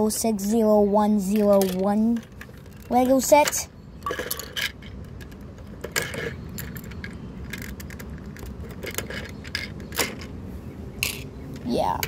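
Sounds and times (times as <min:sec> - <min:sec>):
plastic toy bricks clicking: 0:01.2 - 0:10.3.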